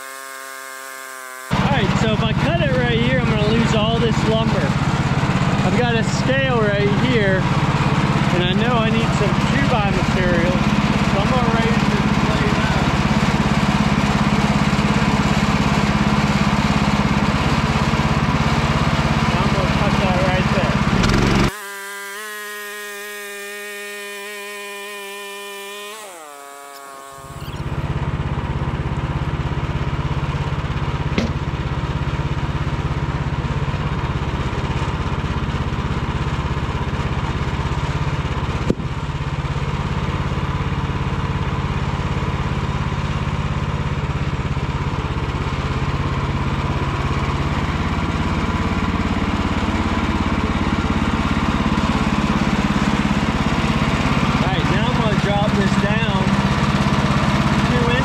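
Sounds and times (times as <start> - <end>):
electric motor whine: 0.0 - 29.3
gas engine running loudly: 0.0 - 58.0.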